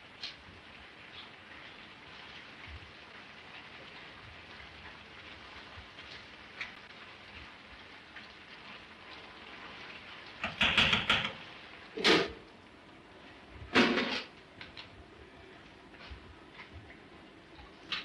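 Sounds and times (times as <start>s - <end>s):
faint crackling hiss of fire: 0.0s - 18.0s
metal pot clanks: 10.4s - 11.4s
metal pots rattling: 10.4s - 11.4s.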